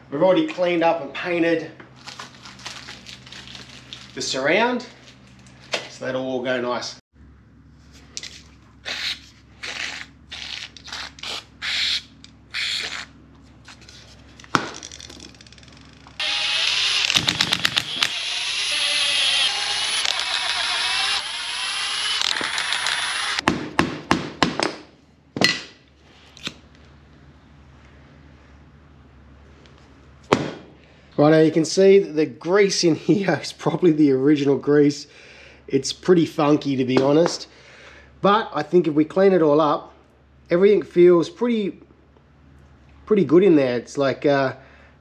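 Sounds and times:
impact wrench hammering: 14.5s - 25.8s.

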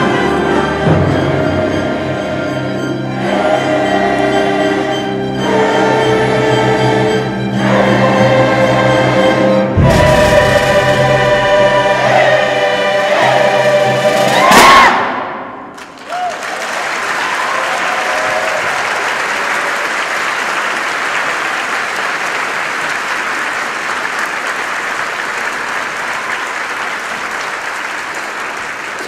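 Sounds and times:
audience applauding: 15.7s - 29.0s.

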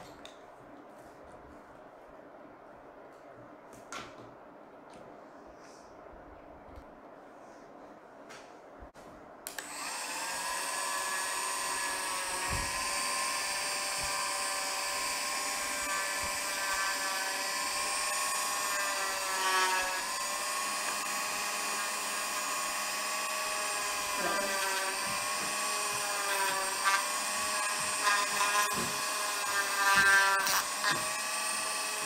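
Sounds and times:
rotary tool whining on metal: 9.5s - 32.0s.

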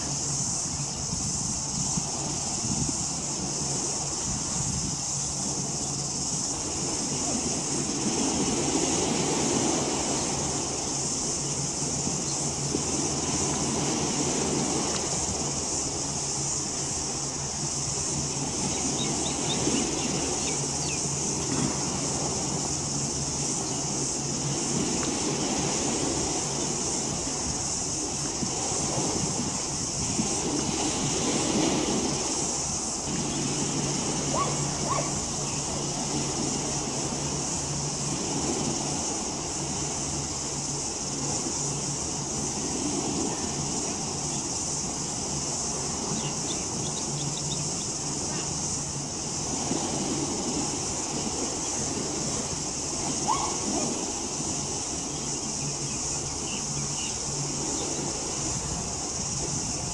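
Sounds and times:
boat engine drone: 0.0s - 59.9s
high hiss: 0.0s - 59.9s
hum: 0.0s - 59.9s
wind on microphone: 0.0s - 59.9s.

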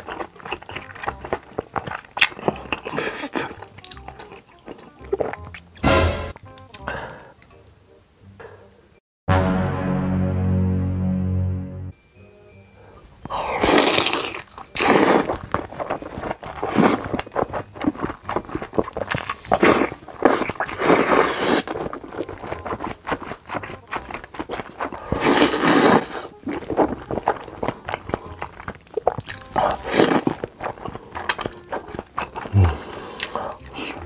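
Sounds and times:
wet chewing and smacking: 0.0s - 5.8s, 13.2s - 34.0s
noodle slurping: 13.4s - 17.1s, 17.8s - 34.0s.

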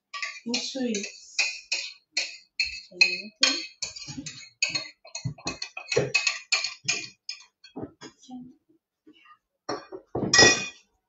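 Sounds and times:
wooden spoon stirring batter in bowl: 0.0s - 8.2s.

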